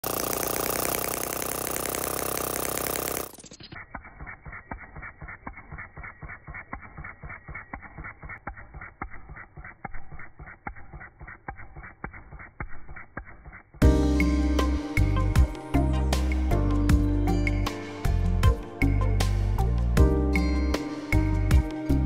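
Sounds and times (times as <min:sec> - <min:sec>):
small petrol engine running: 0:00.0 - 0:10.3.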